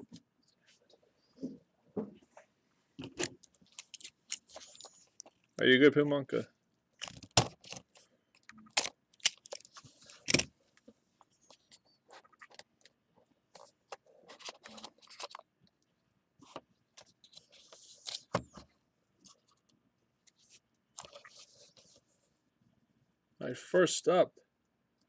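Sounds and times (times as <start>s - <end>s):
cards rustling and sliding: 13.5s - 15.4s, 16.4s - 18.6s.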